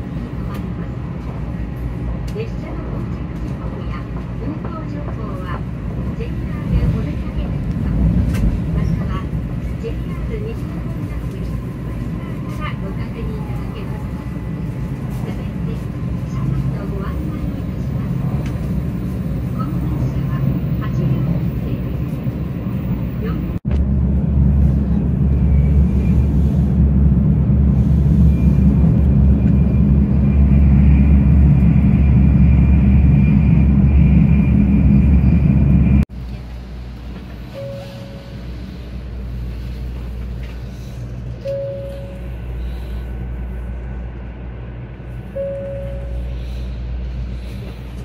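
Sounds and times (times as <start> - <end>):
train cabin low rumble: 0.0 - 48.0
quiet cabin hum: 23.2 - 48.0
short beeps: 37.5 - 38.5, 41.4 - 42.4, 45.4 - 46.4.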